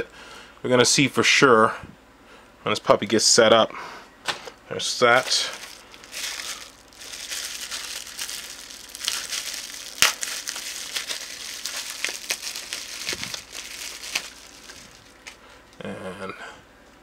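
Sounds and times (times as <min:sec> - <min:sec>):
bubble wrap crinkling: 0:05.1 - 0:15.4.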